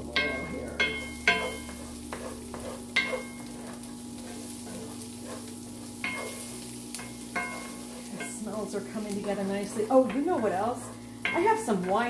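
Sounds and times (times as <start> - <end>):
onions sizzling in oil: 0.0 - 12.0
wooden spoon knocking on pan: 0.1 - 5.0, 7.0 - 12.0.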